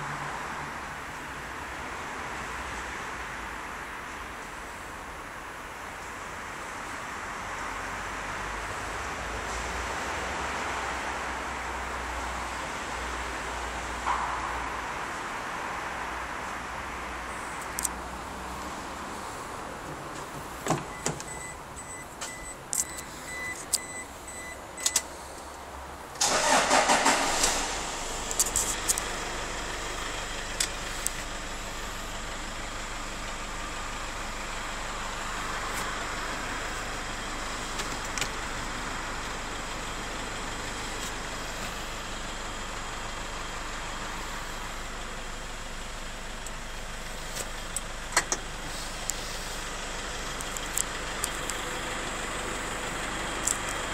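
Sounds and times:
pulsing beep: 20.9s - 25.0s
pickup engine starting and idling: 26.2s - 53.9s.

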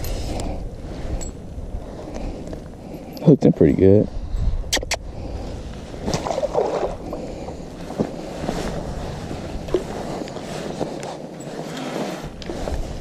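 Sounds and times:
wind noise on microphone: 0.0s - 3.1s, 3.8s - 11.1s, 12.0s - 13.0s
water moving around a boat: 5.1s - 13.0s.

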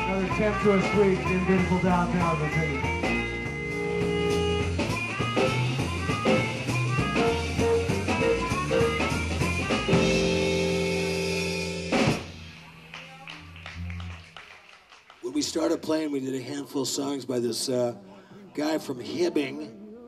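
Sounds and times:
instrumental band music: 0.0s - 14.4s.

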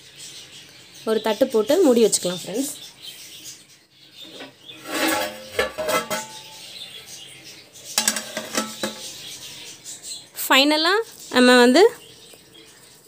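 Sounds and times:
metal utensils clinking on pot: 4.3s - 6.8s, 8.0s - 9.2s.

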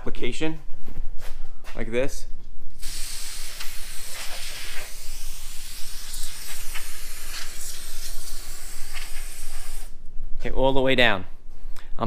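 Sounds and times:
aerosol can spraying hiss: 2.8s - 10.0s.

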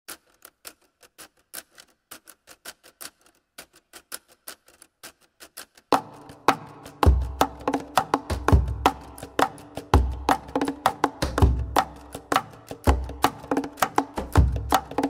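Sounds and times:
pitched music: 6.0s - 15.0s.

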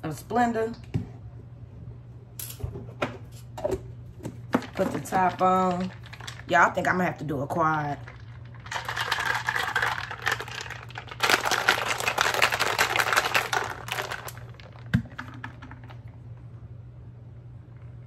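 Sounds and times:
ice cubes rattling in cup: 4.6s - 16.1s.

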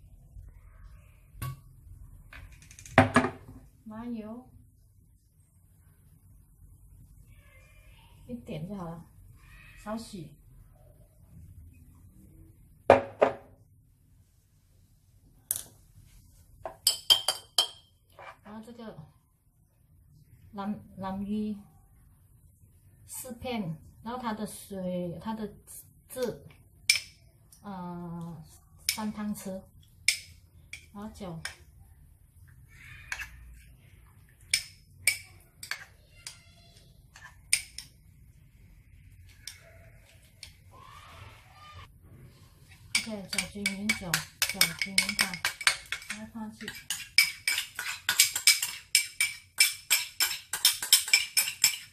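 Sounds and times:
bottle knocking on counter: 12.9s - 13.5s
spoon clinking against ceramic bowl: 16.7s - 17.9s, 26.9s - 27.2s, 30.0s - 31.6s, 34.4s - 36.4s, 37.2s - 37.9s, 42.9s - 51.9s
spoon stirring thick sauce: 28.4s - 40.7s, 42.3s - 51.9s.

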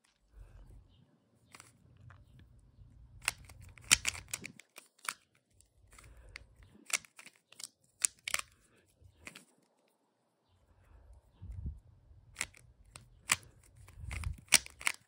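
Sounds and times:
puzzle cube clicking: 3.2s - 8.6s, 12.3s - 15.0s.

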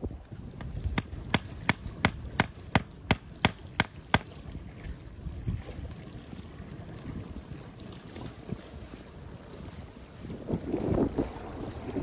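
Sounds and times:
low rumble of wind: 0.0s - 12.0s
hatchet chopping wood: 0.6s - 4.3s.

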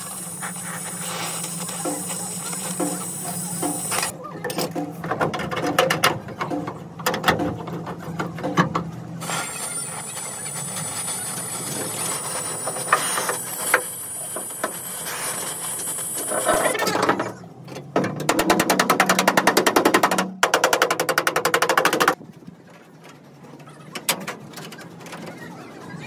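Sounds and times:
hiss-like noise: 0.0s - 4.1s
rapid mechanical clicks and knocks: 0.1s - 25.4s.

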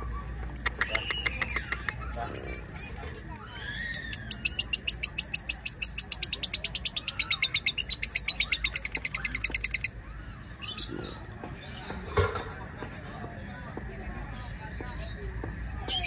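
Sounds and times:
bird chattering trill: 0.0s - 10.0s.

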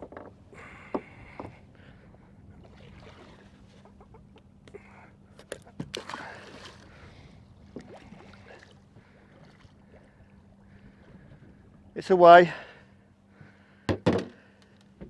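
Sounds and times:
water lapping against boat hull: 0.0s - 12.0s.

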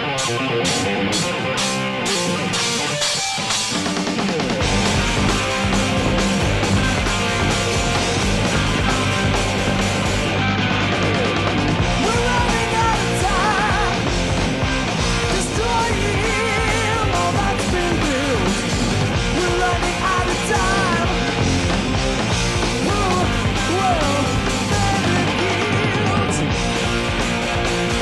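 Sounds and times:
bass: 0.0s - 28.0s
distorted electric guitars: 0.0s - 28.0s
drums: 0.0s - 28.0s
man singing: 12.0s - 14.0s, 15.3s - 18.7s, 19.3s - 21.3s, 22.8s - 26.5s.

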